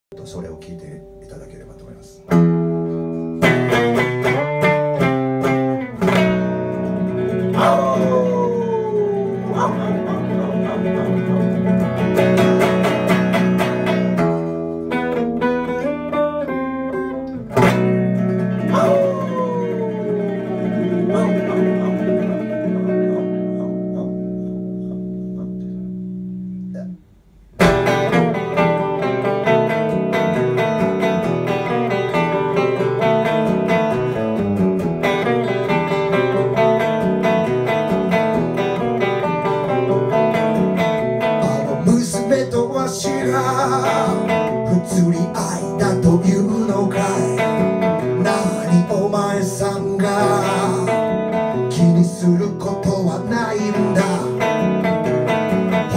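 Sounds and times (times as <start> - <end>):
electric guitar chords: 0.2 - 55.9
man singing: 7.4 - 11.7, 18.6 - 25.6, 41.2 - 55.9.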